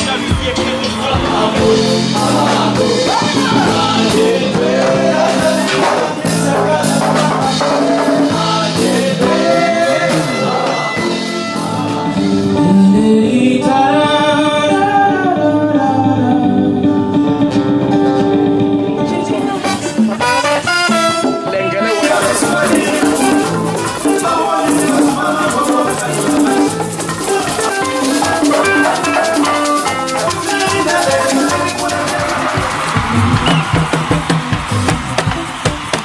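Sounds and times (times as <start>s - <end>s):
sharp percussion strokes: 0.0s - 12.1s, 21.9s - 36.0s
voices singing over instruments: 0.0s - 17.5s, 18.4s - 36.0s.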